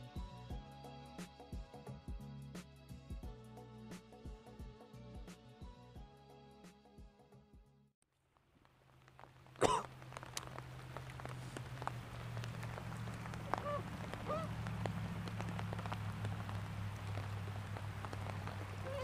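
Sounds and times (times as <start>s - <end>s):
heavy rain on a lake: 8.2s - 19.0s
bird calls: 10.1s - 19.0s.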